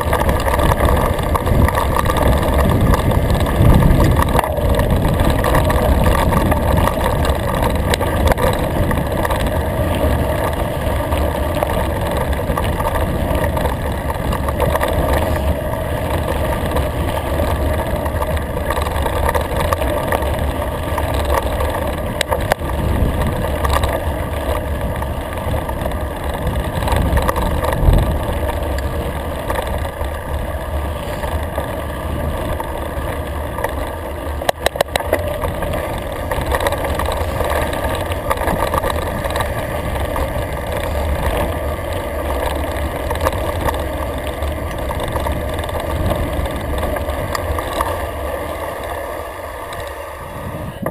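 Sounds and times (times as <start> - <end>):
wind rush: 0.0 - 18.5, 24.6 - 32.7, 42.6 - 50.9
bike knocks and rattles: 0.0 - 50.0, 50.6 - 50.9.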